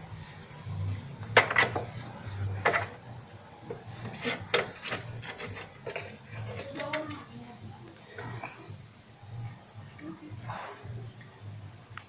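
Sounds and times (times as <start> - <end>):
rubbing and rustling: 1.4 - 7.5.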